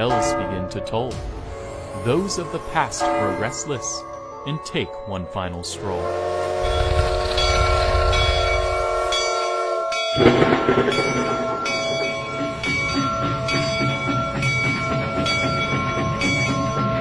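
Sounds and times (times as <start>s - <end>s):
steam locomotive running: 5.6s - 17.0s
rhythmic beat of wheels: 8.2s - 17.0s
sudden loud burst: 10.2s - 12.6s.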